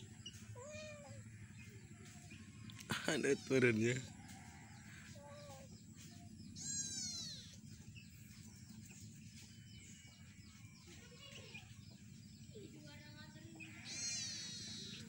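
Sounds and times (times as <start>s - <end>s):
chicks cheeping: 0.0s - 15.0s
kitten meowing: 6.6s - 7.5s, 13.8s - 15.0s.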